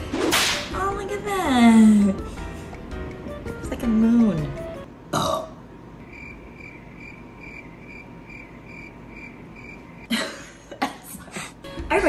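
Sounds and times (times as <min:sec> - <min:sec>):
cricket chirping: 0:06.0 - 0:10.1.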